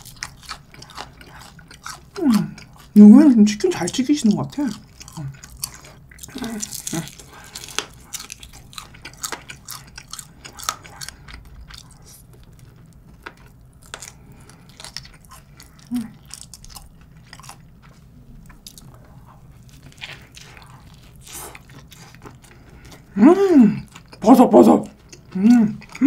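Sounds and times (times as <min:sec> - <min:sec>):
crunching fried chicken: 0:00.0 - 0:23.2
wet chewing: 0:00.0 - 0:26.0.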